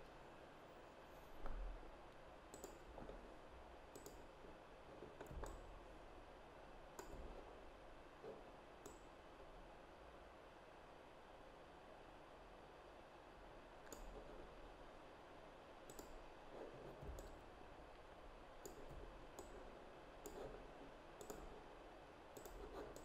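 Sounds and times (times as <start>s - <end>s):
computer mouse clicks: 2.5s - 3.2s, 3.9s - 4.3s, 5.0s - 5.7s, 6.9s - 7.5s, 8.2s - 9.1s, 13.8s - 14.4s, 15.8s - 17.4s, 18.6s - 21.6s, 22.3s - 23.0s.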